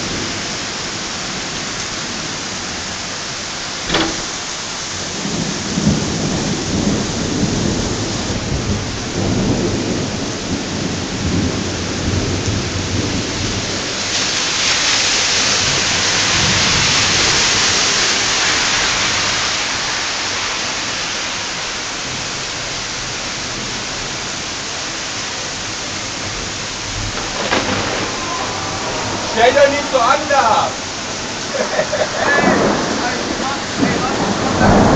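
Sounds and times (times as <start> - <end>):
heavy rain pouring: 0.0 - 34.9
thunder rumbling: 3.6 - 19.6, 26.2 - 34.9.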